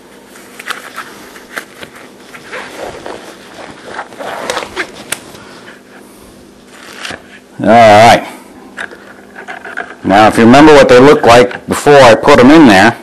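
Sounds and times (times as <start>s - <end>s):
rubber gloves rustling and stretching: 0.3s - 6.0s.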